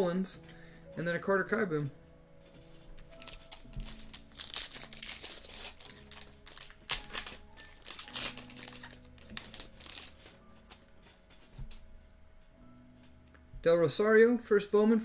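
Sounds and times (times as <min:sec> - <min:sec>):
foil wrapper crinkling: 0:02.8 - 0:11.8
foil wrapper tearing: 0:03.0 - 0:10.8.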